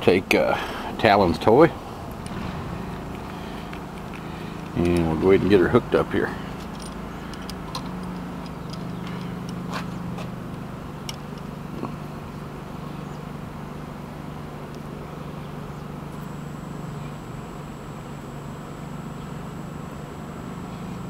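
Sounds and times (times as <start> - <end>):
steady low hum: 0.0 - 21.0
light metal clicks: 6.4 - 11.9.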